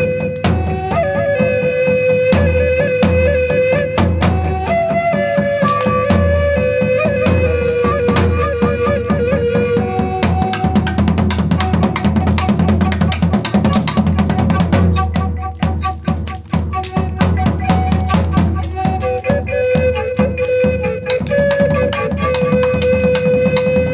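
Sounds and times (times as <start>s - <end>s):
end-blown flute melody: 0.0s - 23.9s
bass drum and snare beat: 2.3s - 23.9s.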